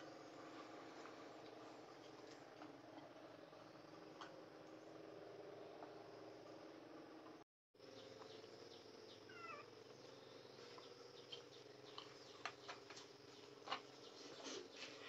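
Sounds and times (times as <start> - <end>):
faint steady hum: 0.0 - 15.0.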